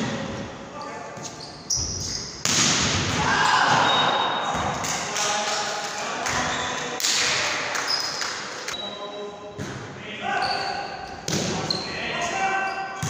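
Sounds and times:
volleyball smack: 0:02.4 - 0:03.9
players shouting: 0:03.1 - 0:04.8.

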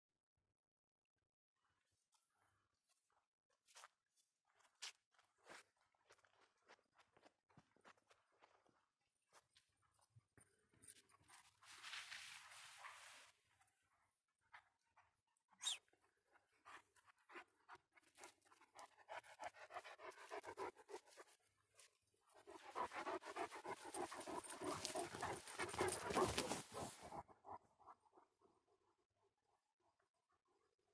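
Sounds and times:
dog panting: 0:14.4 - 0:28.0.

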